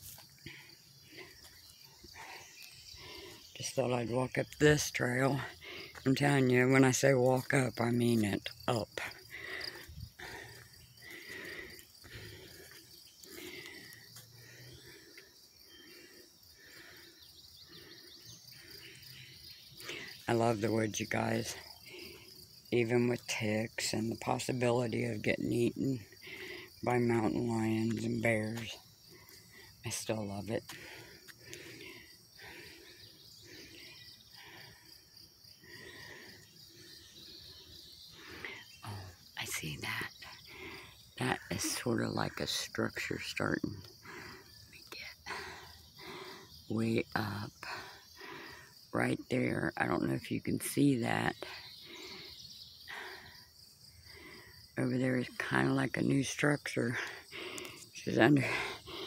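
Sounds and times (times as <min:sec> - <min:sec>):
footsteps on dirt trail: 0:00.0 - 0:03.8, 0:04.5 - 0:17.0, 0:26.2 - 0:34.9
crickets chirping: 0:00.0 - 0:59.0.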